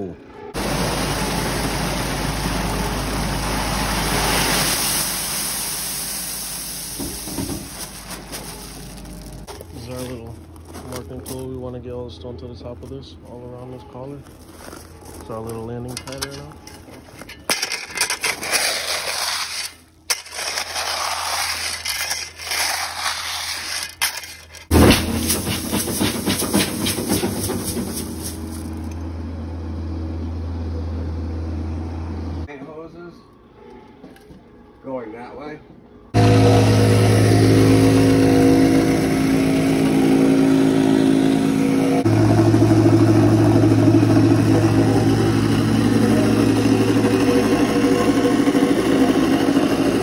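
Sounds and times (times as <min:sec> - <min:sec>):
machine engine running: 0:00.5 - 0:05.2, 0:24.6 - 0:32.4, 0:36.2 - 0:50.0
crushed stone pouring into water: 0:03.8 - 0:09.5
crushed stone crunching under boots: 0:06.6 - 0:11.5, 0:14.1 - 0:18.5, 0:24.0 - 0:29.0.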